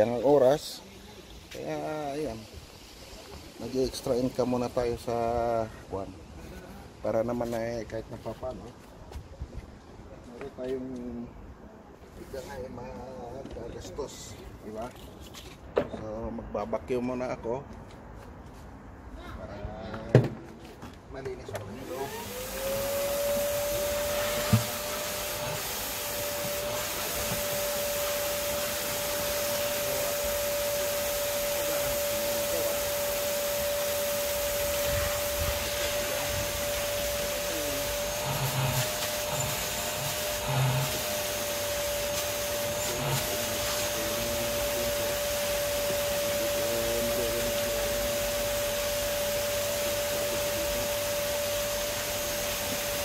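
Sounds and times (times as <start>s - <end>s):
vacuum cleaner whining: 21.6s - 53.0s.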